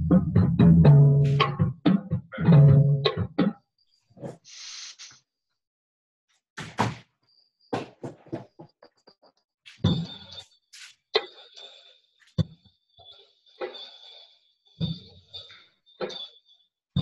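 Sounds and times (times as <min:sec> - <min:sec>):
short hiss: 0:04.5 - 0:05.2.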